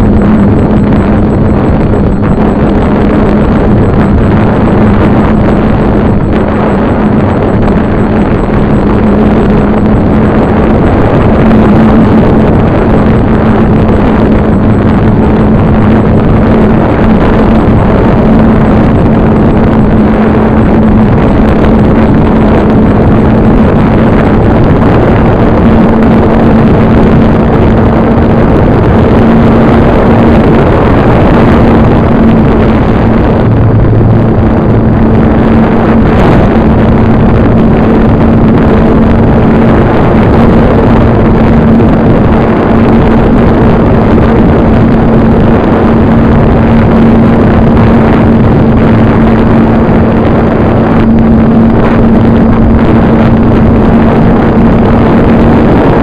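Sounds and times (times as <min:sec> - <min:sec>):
propeller drone: 0:00.0 - 0:56.0
rushing wind noise: 0:00.0 - 0:56.0.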